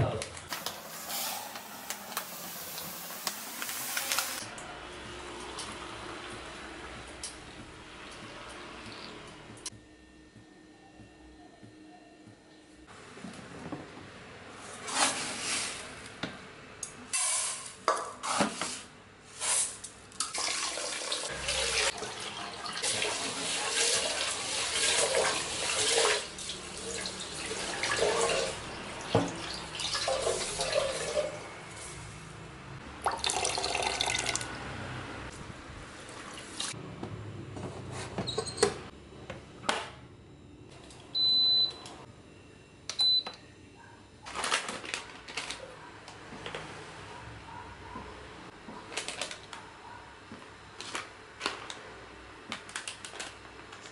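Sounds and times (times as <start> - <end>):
tap water running into pot: 20.3 - 31.4, 33.0 - 34.5
rice cooker beep: 41.1 - 41.9, 42.9 - 43.4.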